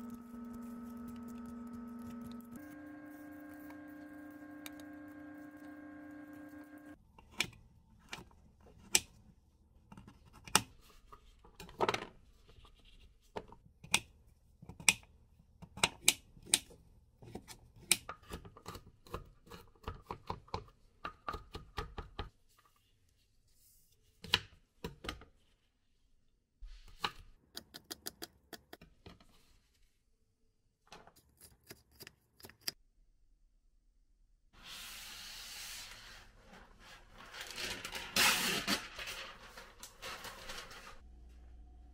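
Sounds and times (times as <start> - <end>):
rustling: 36.3 - 41.0.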